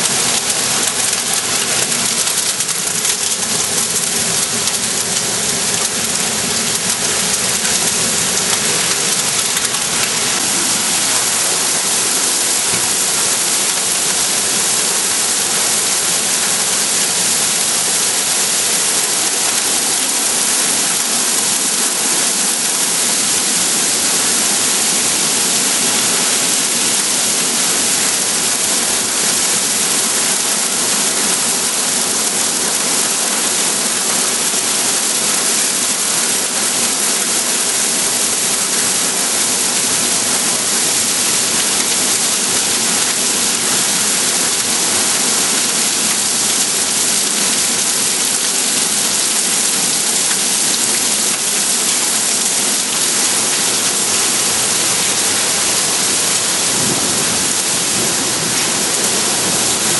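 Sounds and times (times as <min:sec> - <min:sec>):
heavy rain pouring: 0:00.0 - 0:59.9.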